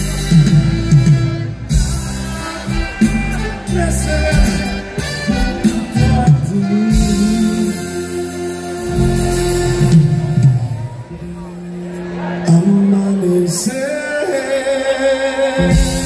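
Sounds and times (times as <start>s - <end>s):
instrumental band music: 0.0s - 13.6s, 15.5s - 16.0s.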